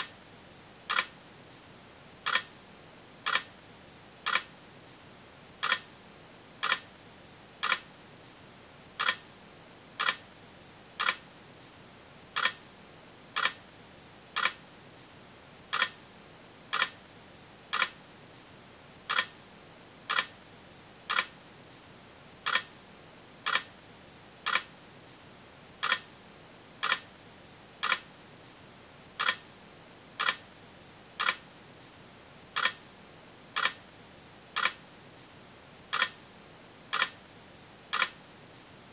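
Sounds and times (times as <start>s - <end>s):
faint hiss: 0.0s - 38.9s
sharp clicks: 0.9s - 1.1s, 2.2s - 2.5s, 3.3s - 3.5s, 4.3s - 4.5s, 5.6s - 5.9s, 7.6s - 7.9s, 9.0s - 9.2s, 10.0s - 10.2s, 11.0s - 11.2s, 12.4s - 12.6s, 13.4s - 13.6s, 14.4s - 14.6s, 15.7s - 16.0s, 16.7s - 17.0s, 17.7s - 18.0s, 19.1s - 19.3s, 20.1s - 20.3s, 21.1s - 21.3s, 23.5s - 23.7s, 24.5s - 24.7s, 25.8s - 26.1s, 26.8s - 27.1s, 27.8s - 28.1s, 29.2s - 29.4s, 30.2s - 30.4s, 31.2s - 31.4s, 32.6s - 32.8s, 33.6s - 33.8s, 34.6s - 34.8s, 35.9s - 36.2s, 36.9s - 37.2s, 37.9s - 38.2s.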